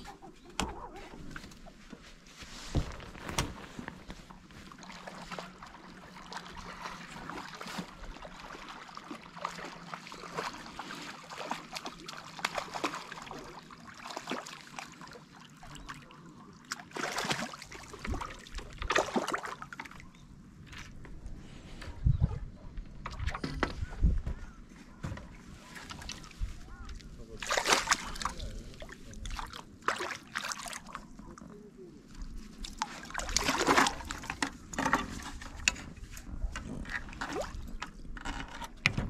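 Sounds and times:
fish thrashing and splashing water: 2.8 - 16.0, 16.6 - 20.0, 25.6 - 31.1, 32.5 - 35.6.

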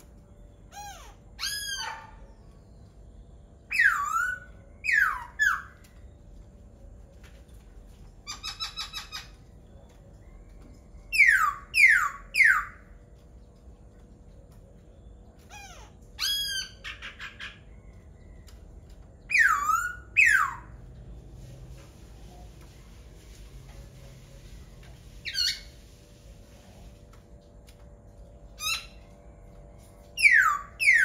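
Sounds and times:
bird singing: 0.0 - 20.9, 28.1 - 31.0.

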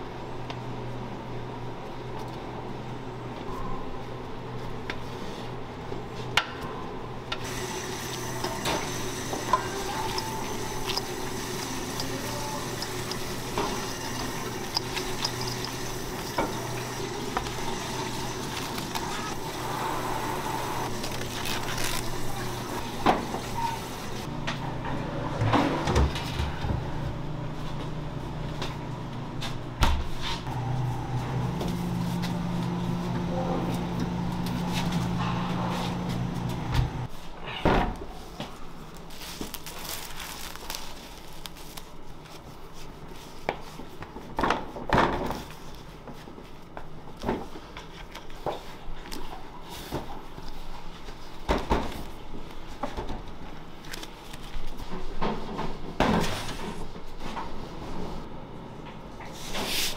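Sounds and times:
cabinet fan humming: 7.1 - 29.8, 30.5 - 37.1
plastic wrap pulled off: 20.9 - 22.8, 39.0 - 42.4.

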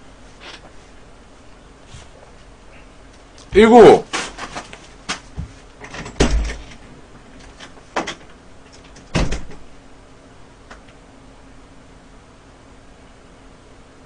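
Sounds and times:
knocks and thumps of person moving: 4.1 - 6.8.

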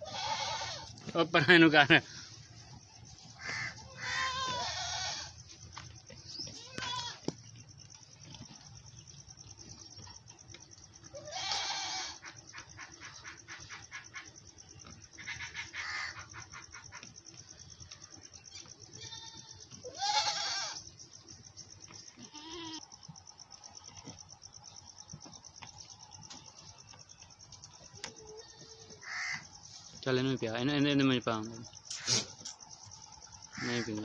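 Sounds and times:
goat bleating: 0.0 - 1.1, 3.4 - 5.4, 6.5 - 7.3, 11.1 - 12.2, 18.9 - 20.9, 22.1 - 22.9.

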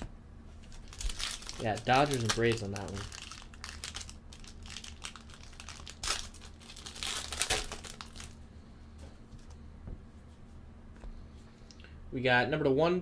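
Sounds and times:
foil wrapper tearing and crinkling: 0.6 - 8.4.

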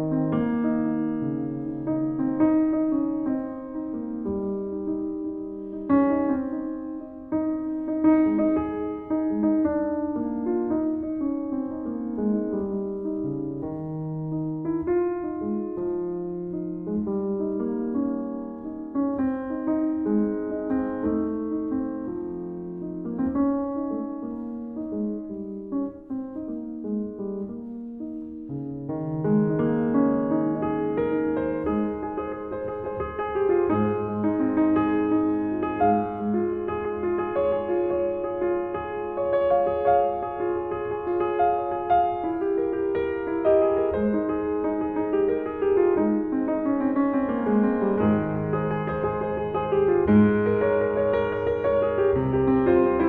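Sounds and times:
solo grand piano: 0.0 - 53.0.

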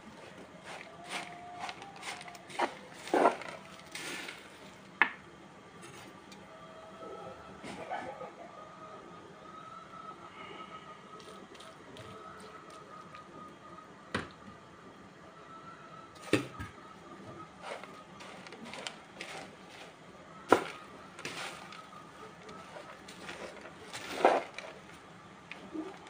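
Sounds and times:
wooden spoon stirring pasta in pot: 0.0 - 4.8, 17.6 - 26.0.

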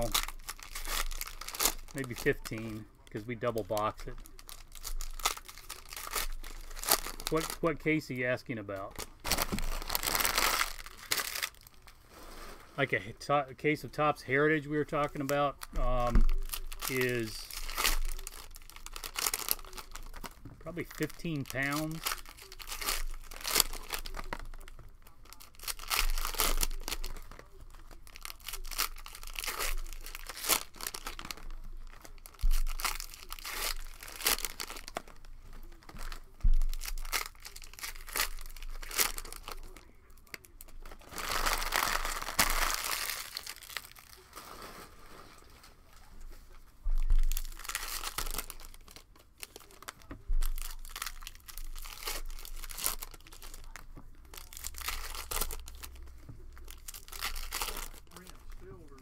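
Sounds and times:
cellophane tearing: 0.0 - 12.8, 14.5 - 45.8, 47.1 - 59.0
cellophane wrappers crinkling: 0.0 - 59.0.

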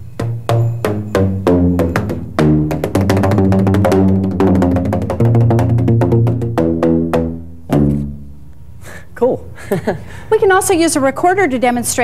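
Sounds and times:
tuned tubes struck with paddle: 0.0 - 8.6.

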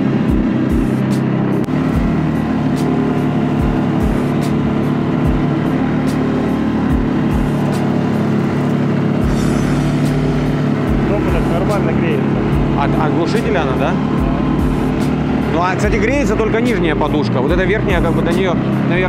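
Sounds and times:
low thumps: 0.0 - 18.9
quad bike engine running: 0.0 - 19.0.

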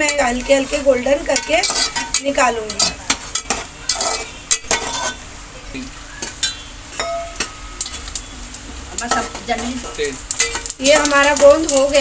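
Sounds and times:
spatula stirring and scraping: 0.0 - 5.2
ghee sizzling in a pan: 0.0 - 12.0.

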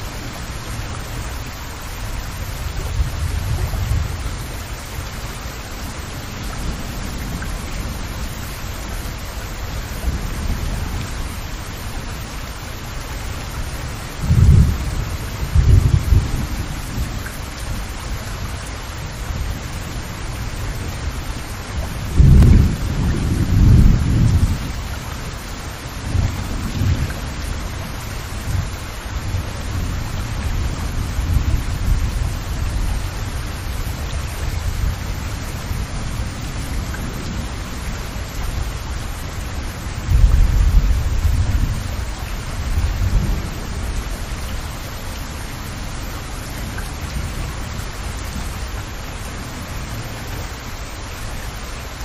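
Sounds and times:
steady rain: 0.0 - 52.0
deep thunder rumbles: 2.0 - 5.2, 13.5 - 18.0, 19.1 - 38.8, 39.6 - 44.7.

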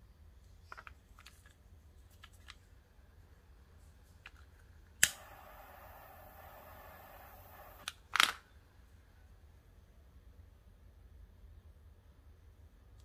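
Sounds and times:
jet flame hissing: 5.0 - 7.9
lighter igniter click: 5.0 - 7.9.

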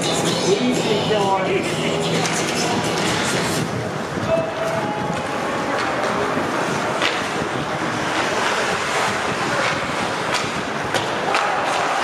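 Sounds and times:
hockey sticks and puck knocking: 4.6 - 7.5, 8.1 - 12.0.

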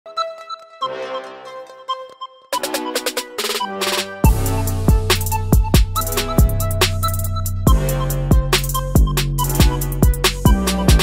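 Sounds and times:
high synth notes: 0.1 - 11.0
kick drum beat: 4.2 - 6.8, 7.7 - 11.0
deep bass: 4.3 - 11.0.

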